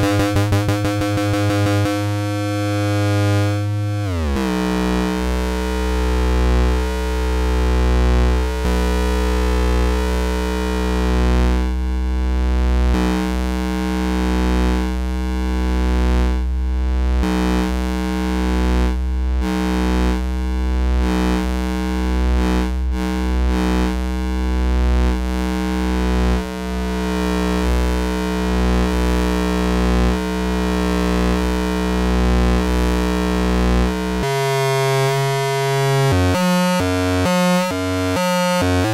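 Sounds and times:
low synthesizer drone: 0.0 - 38.9.

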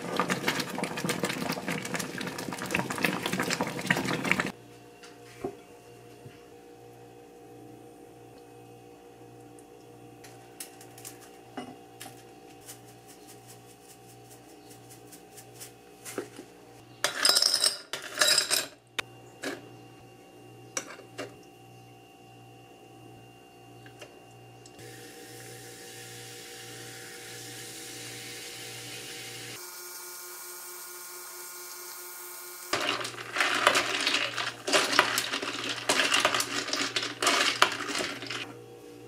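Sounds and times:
sparkling water poured and fizzing: 0.0 - 4.6, 25.0 - 29.6
ice cubes clattering into glass: 32.8 - 38.5.

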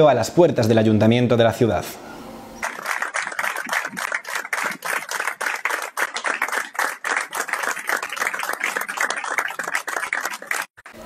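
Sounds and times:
group applauding: 2.6 - 11.0.

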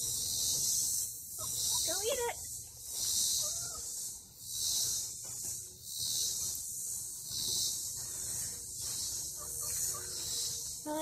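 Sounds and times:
insects chorus: 0.0 - 11.0.

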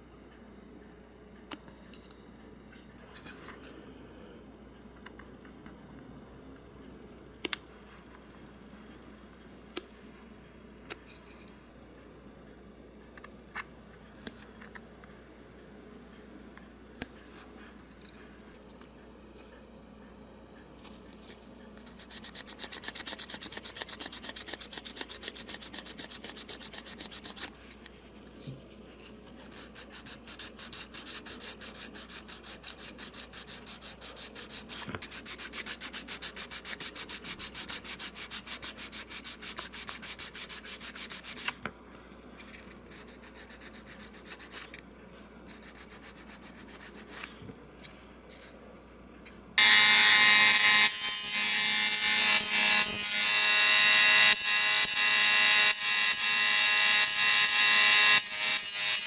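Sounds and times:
sandpaper rubbing: 21.8 - 27.5, 29.4 - 41.6.

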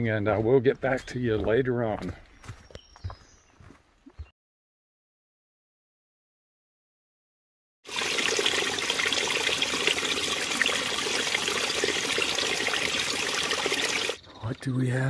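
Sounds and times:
stream flowing over rocks: 7.9 - 14.2.

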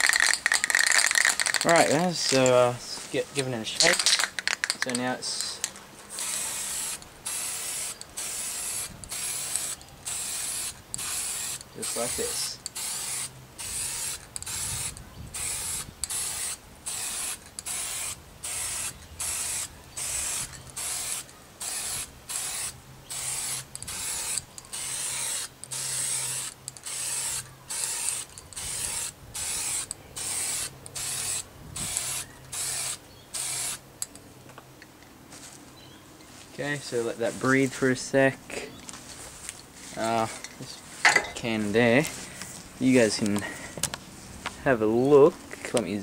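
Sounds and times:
spray can hissing in spurts: 0.0 - 2.6, 3.4 - 33.8.

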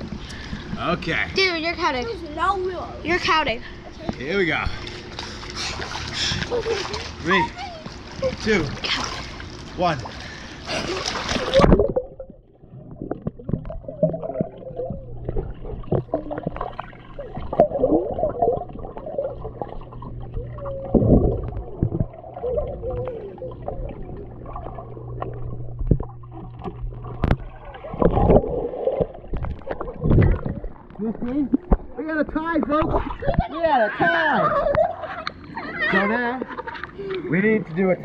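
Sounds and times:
muffled underwater hum: 3.4 - 33.6
water gurgling and bubbling: 4.7 - 32.1, 32.7 - 33.5.

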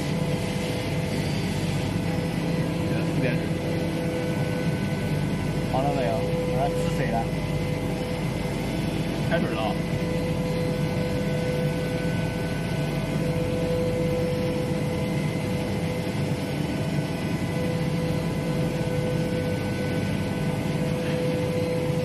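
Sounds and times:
milling machine hum: 0.0 - 22.0.

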